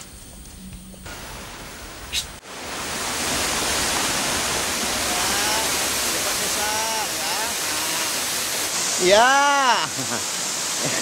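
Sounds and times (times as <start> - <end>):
waterfall rushing: 1.1 - 11.0
short whistled calls: 2.1 - 2.4.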